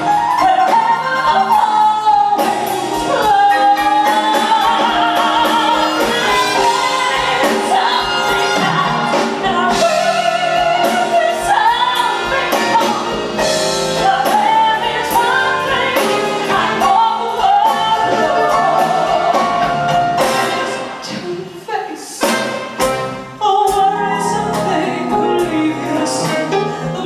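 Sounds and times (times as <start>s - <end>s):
live band playing: 0.0s - 27.0s
woman singing long notes: 23.4s - 27.0s.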